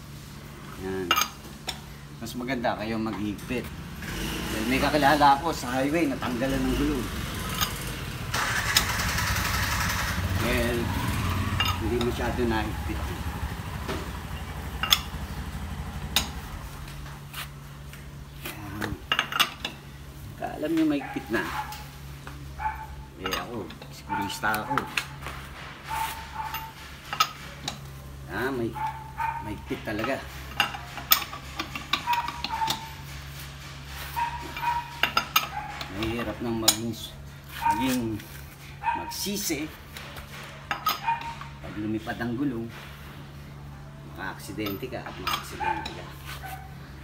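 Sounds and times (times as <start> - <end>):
wrench clinking on wheel nuts: 1.0 - 3.6, 4.8 - 9.1, 11.5 - 12.7, 14.2 - 15.2, 18.8 - 19.8, 22.6 - 25.1, 25.9 - 27.9, 28.7 - 33.1, 34.1 - 42.1, 44.4 - 46.2
lug wrench clicking on lug nuts: 7.5 - 10.7, 11.6 - 12.3, 14.7 - 15.2, 16.0 - 17.0, 29.9 - 33.0, 44.6 - 46.0.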